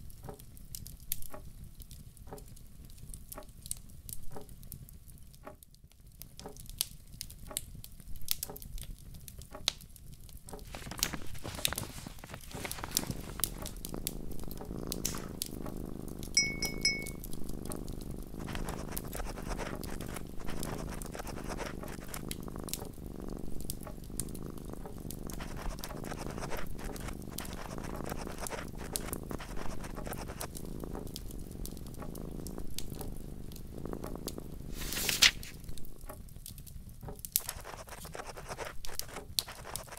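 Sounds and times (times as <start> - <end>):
low rumble of flames: 0.0 - 16.4, 17.2 - 37.5
wood fire crackling: 0.0 - 39.9
clear ring: 16.4 - 17.2.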